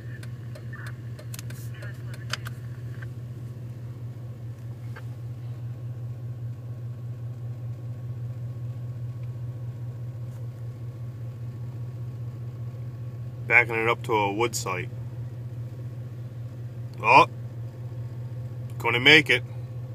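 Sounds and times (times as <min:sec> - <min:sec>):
truck engine idling: 0:00.0 - 0:19.9.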